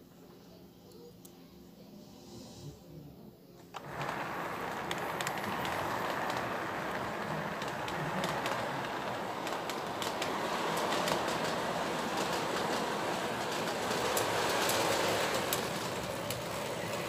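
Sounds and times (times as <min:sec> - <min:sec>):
toy train rolling rumble: 0:03.7 - 0:17.0
wheel clicks on rail joints: 0:03.8 - 0:17.0.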